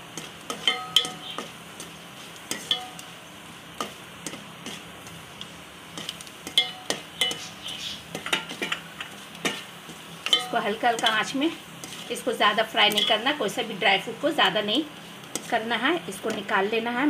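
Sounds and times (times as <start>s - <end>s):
soft frying sizzle: 0.0s - 17.0s
spoon scraping and clicking on pot: 0.2s - 1.9s, 2.5s - 3.1s, 3.8s - 11.2s.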